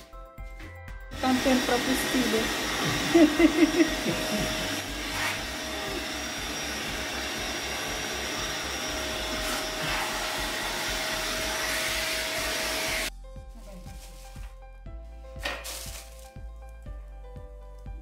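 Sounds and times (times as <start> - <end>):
vacuum cleaner running: 1.1 - 13.1.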